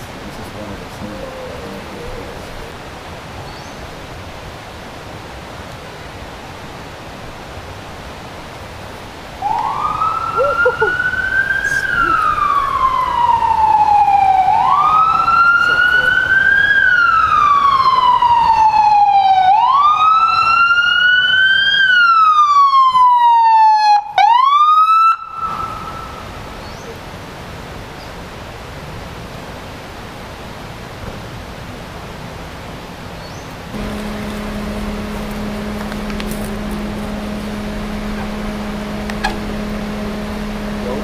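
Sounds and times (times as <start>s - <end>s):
police siren wailing: 9.4s - 26.3s, 33.8s - 41.0s.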